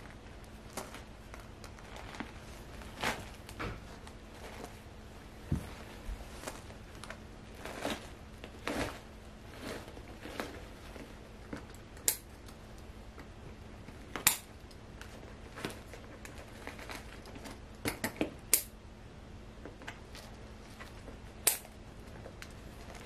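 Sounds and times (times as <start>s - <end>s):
scissors snipping roots: 21.4s - 21.7s.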